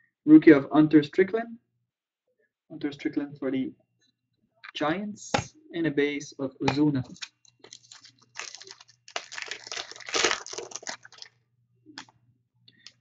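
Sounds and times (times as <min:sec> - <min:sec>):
foil wrapper crinkling: 0:07.1 - 0:11.3.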